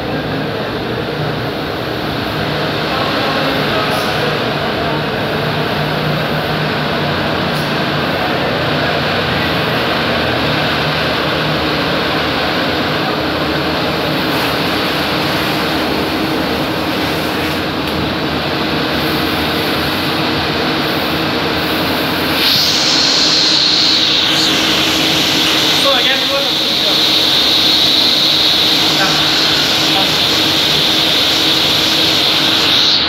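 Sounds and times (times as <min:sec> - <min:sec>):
cooling blower: 0:00.0 - 0:33.0
industrial machine drone: 0:00.0 - 0:33.0
airy hiss: 0:22.2 - 0:33.0.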